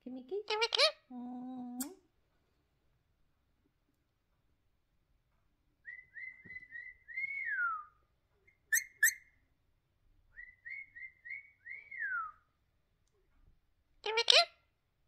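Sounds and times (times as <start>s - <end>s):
parakeet whistling: 8.7s - 9.3s.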